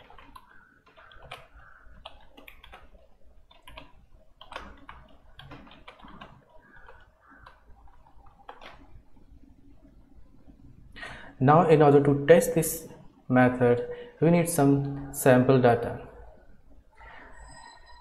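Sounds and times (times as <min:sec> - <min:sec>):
computer keyboard typing: 0:00.0 - 0:08.9.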